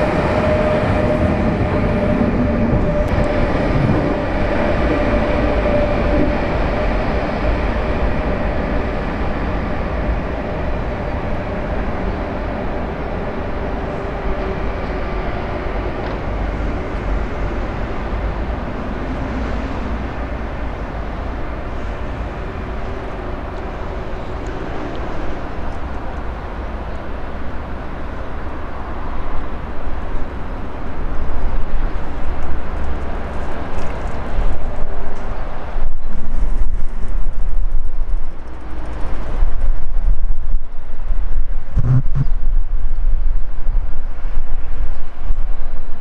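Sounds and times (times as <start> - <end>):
electric locomotive rumbling: 0.0 - 46.0.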